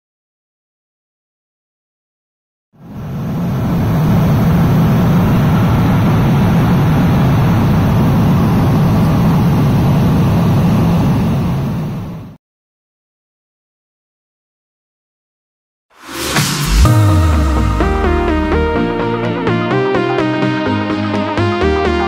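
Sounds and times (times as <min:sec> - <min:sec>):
jet engine cabin rumble: 0:03.0 - 0:12.3.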